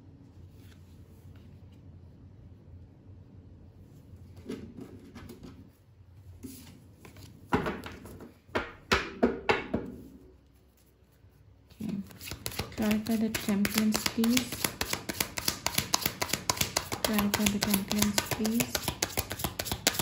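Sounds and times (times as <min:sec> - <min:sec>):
cards rustling: 0:11.7 - 0:20.0
cards slapping on table: 0:11.8 - 0:20.0.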